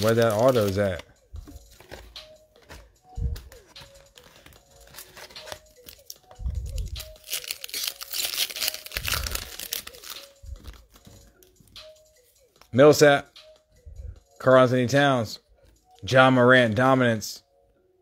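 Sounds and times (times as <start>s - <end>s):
foil wrapper tearing and crinkling: 0.0s - 1.0s, 4.1s - 10.4s.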